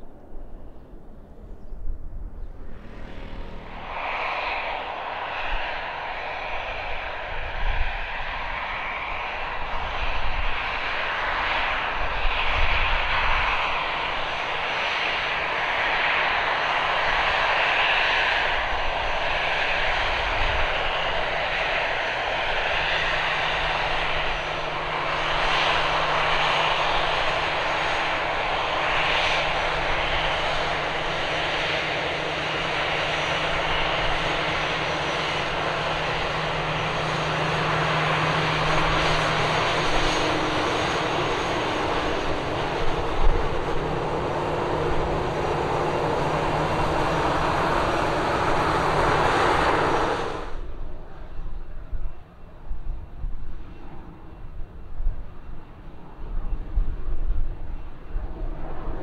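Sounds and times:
low hum: 0:00.0 - 0:09.3
jet engines whining: 0:02.2 - 0:59.0.

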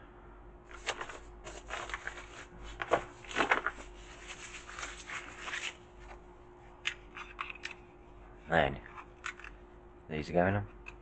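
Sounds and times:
packaging rustling and crinkling: 0:00.7 - 0:05.8.

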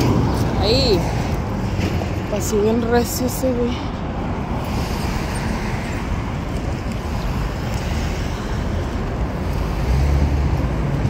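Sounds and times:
cars passing on street: 0:00.0 - 0:11.0.

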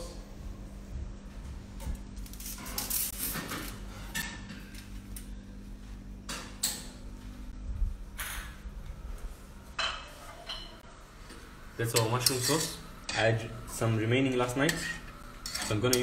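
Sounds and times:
steady low hum: 0:00.0 - 0:16.0
kitchen scrapes and rustles: 0:14.4 - 0:16.0.

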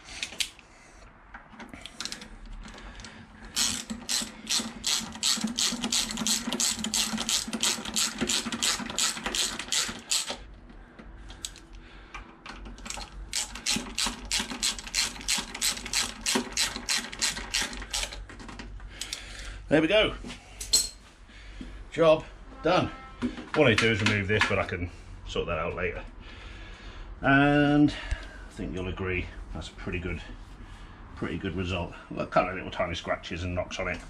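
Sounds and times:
socket ratchet clicking: 0:03.5 - 0:10.4, 0:12.8 - 0:18.2.

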